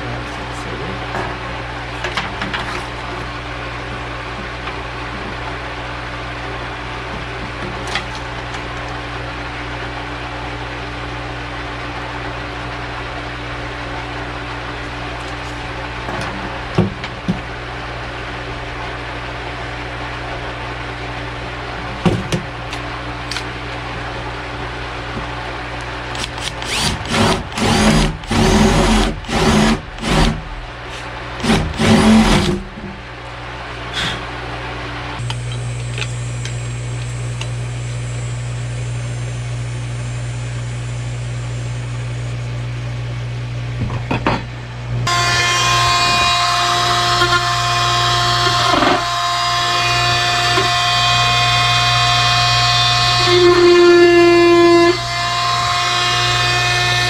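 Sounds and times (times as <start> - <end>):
power tool cutting wood: 26.2 - 30.4, 31.4 - 32.6, 45.1 - 57.0.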